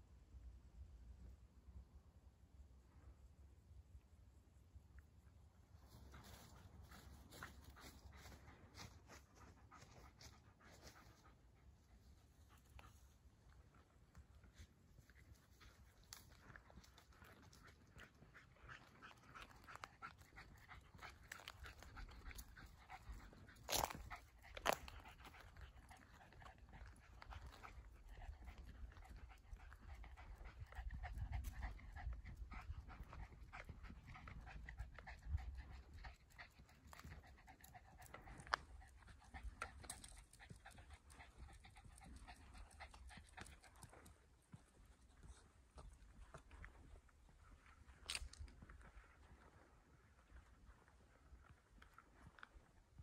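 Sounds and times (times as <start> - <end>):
dog panting: 5.9 - 13.8, 14.5 - 46.7.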